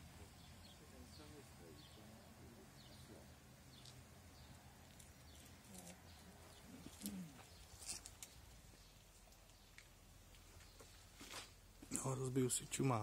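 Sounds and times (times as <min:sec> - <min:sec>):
low calls: 0:00.0 - 0:09.0.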